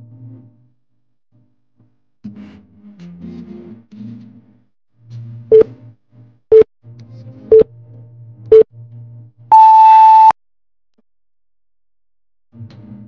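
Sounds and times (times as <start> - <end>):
soft background music: 2.2 - 9.5
countdown timer beeps: 9.5 - 10.3.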